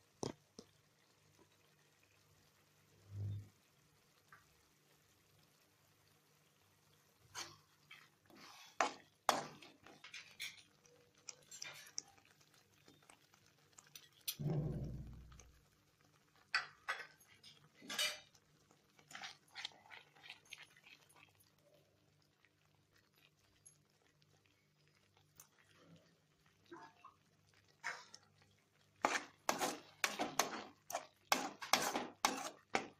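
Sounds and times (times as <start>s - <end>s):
metal spoon scraping a pan: 7.3s - 12.1s, 13.8s - 15.4s, 16.6s - 18.4s, 19.0s - 21.0s, 27.8s - 28.2s, 29.0s - 32.9s.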